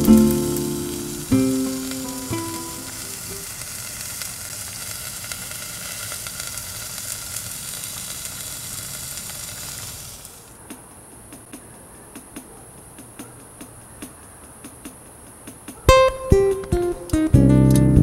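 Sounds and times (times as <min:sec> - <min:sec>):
food sizzling in a pot: 0:00.0 - 0:10.5.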